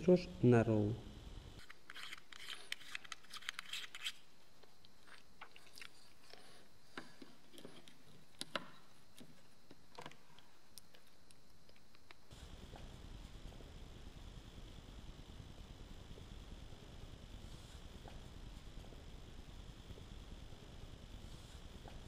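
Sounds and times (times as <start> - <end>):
filter screwing clicks and scrapes: 1.6 - 4.2.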